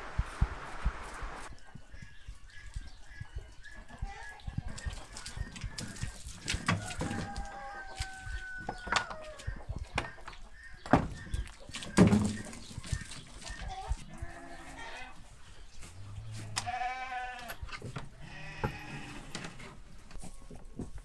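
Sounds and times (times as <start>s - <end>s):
livestock bleating: 14.1s - 15.2s, 16.4s - 17.6s, 18.2s - 19.3s.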